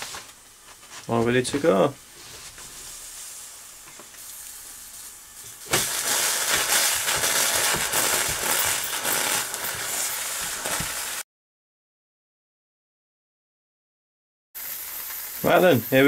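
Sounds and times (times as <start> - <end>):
steam rushing and spitting: 2.2 - 11.2, 14.6 - 16.0
irregular crackles: 3.8 - 11.2
toy steam engine hissing: 4.2 - 11.2, 14.6 - 16.0.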